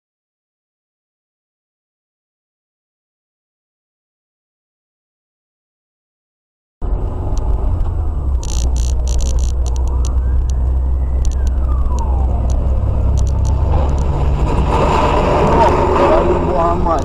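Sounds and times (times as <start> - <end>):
faint siren-like wail: 6.8 - 14.4
engine and road noise rumble: 6.8 - 17.0.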